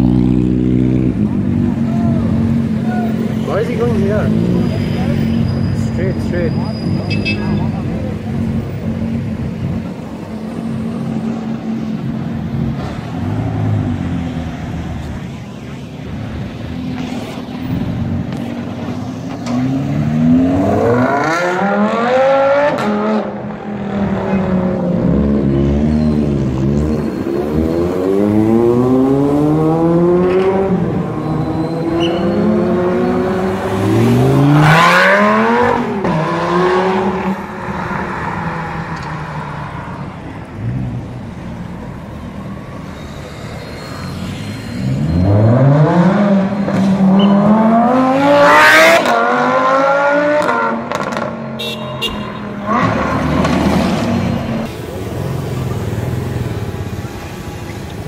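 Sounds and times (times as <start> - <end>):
car engines revving past: 16.0 - 51.6, 52.2 - 58.0.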